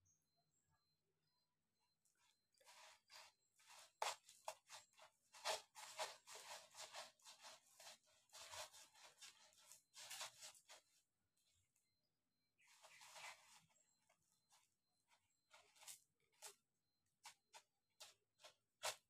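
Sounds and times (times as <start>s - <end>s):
kittens scratching plastic toy: 2.5s - 11.0s, 12.6s - 19.0s.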